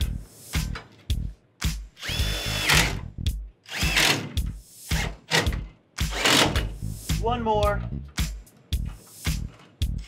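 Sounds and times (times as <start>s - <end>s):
impact driver driving screws: 2.0s - 3.0s, 3.7s - 5.5s, 6.1s - 6.7s.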